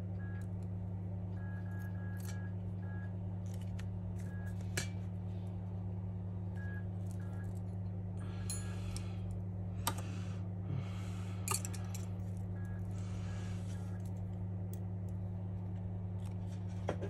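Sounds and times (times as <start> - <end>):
steady low hum: 0.0 - 17.0
light clicks of small tools: 11.4 - 12.8.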